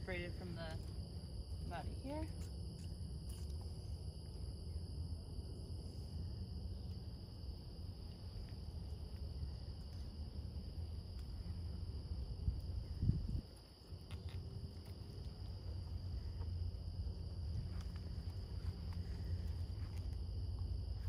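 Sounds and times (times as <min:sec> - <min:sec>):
low rumble: 0:07.8 - 0:21.0.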